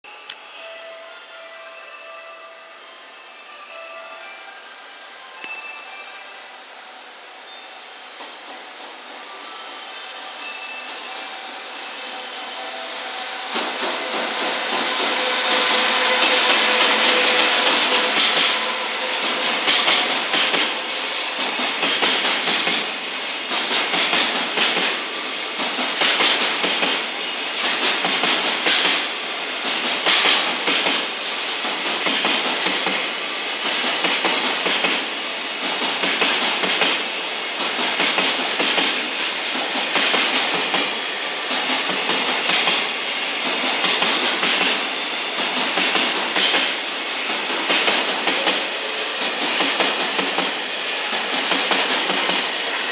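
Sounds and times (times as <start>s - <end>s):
train rolling rumble: 7.3s - 52.9s
train wheels clattering over rail joints: 13.5s - 25.0s, 25.6s - 52.7s.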